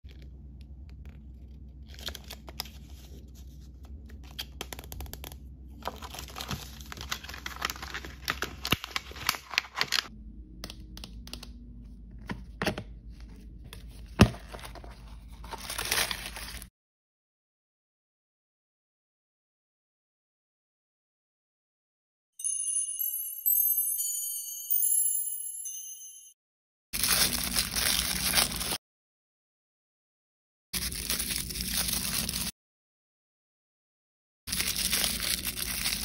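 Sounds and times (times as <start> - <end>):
plastic wrapping crinkling: 5.8 - 10.1, 14.6 - 16.7, 27.0 - 28.8, 34.5 - 36.0.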